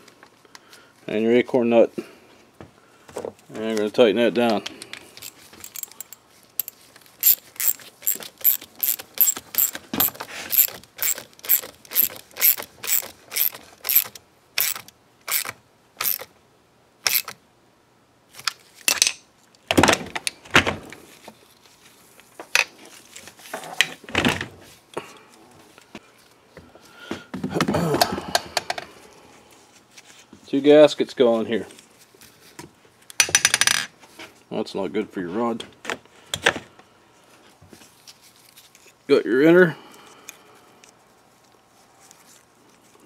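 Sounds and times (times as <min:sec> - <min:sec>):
hand ratchet clicking: 0:05.2 - 0:16.3, 0:17.0 - 0:17.4.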